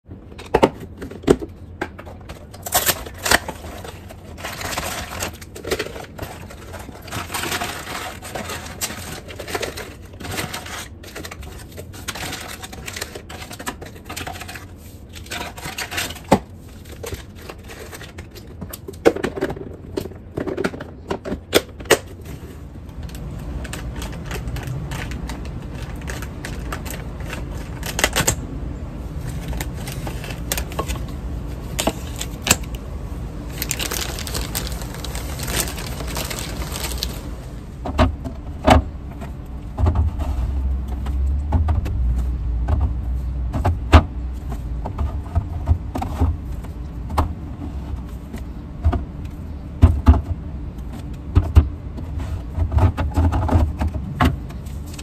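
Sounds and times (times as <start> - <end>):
paper packets crinkling: 23.0 - 28.4, 29.2 - 37.6.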